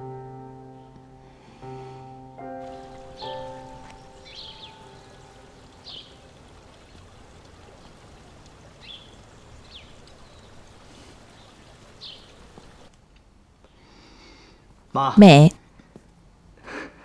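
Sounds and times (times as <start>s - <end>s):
background music: 0.0s - 6.4s
faint hiss: 0.8s - 15.4s.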